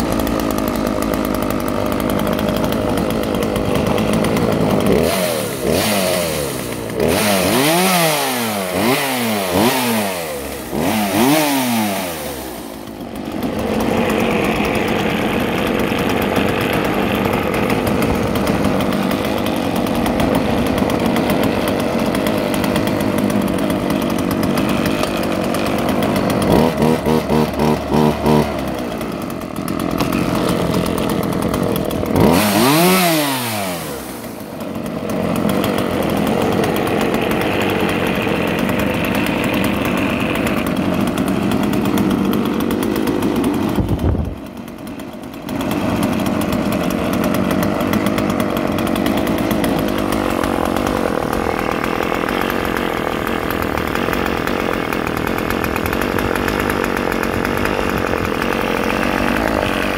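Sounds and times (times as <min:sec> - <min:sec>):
chainsaw revving and idling: 0:00.0 - 0:59.9.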